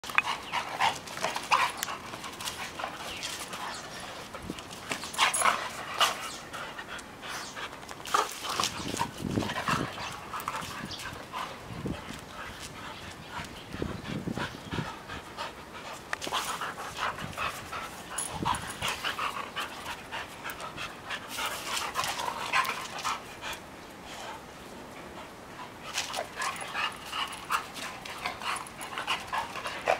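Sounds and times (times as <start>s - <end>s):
paws scuffling on concrete: 0.0s - 24.4s, 25.2s - 29.9s
dogs panting heavily: 0.1s - 29.9s.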